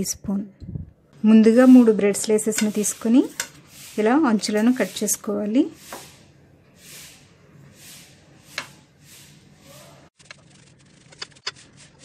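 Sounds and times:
knife tapping metal plate: 2.2s - 2.8s.

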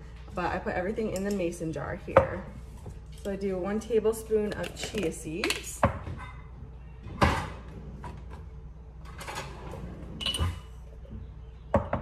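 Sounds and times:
kitchen cabinet knocks: 11.7s - 12.0s.

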